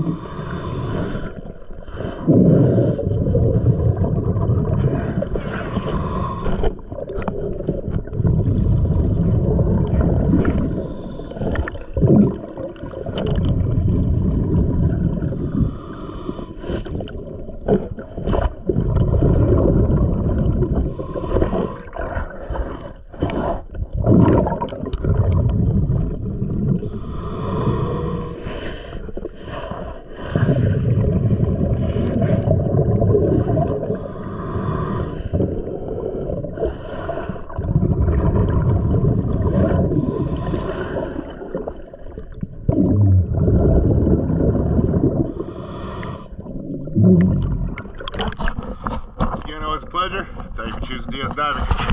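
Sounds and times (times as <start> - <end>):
hissing regulator inhalations: 0.0 - 3.0, 5.2 - 6.8, 10.5 - 11.7, 15.4 - 17.1, 20.9 - 23.7, 26.8 - 30.8, 33.4 - 35.5, 39.8 - 41.5, 45.3 - 46.5
bubbling underwater exhalations: 0.0 - 49.5.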